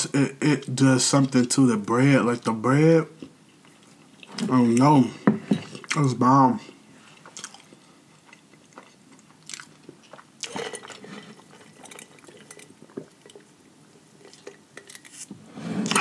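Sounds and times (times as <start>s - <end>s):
chewing and lip smacking: 7.2s - 10.7s.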